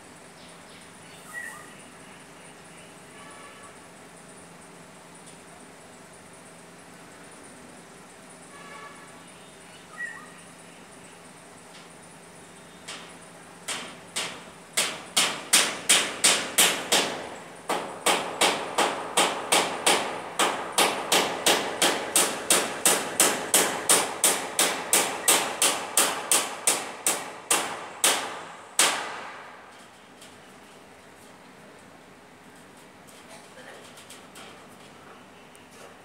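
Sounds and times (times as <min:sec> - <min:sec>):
hammer striking nails: 0:13.7 - 0:29.6.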